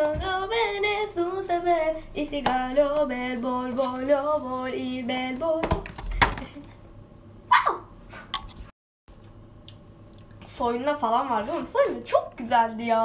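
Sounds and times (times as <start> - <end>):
girl singing unaccompanied: 0.0 - 5.8.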